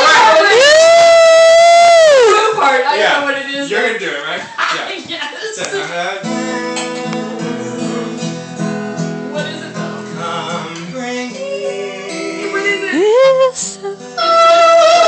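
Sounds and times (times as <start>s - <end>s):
acoustic guitar strummed: 6.2s - 15.0s
person singing: 6.3s - 15.0s.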